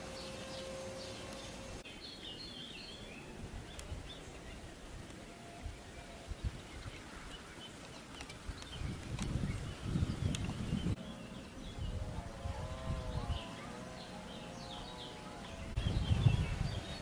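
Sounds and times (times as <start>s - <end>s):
bird chirps: 0.0s - 4.7s.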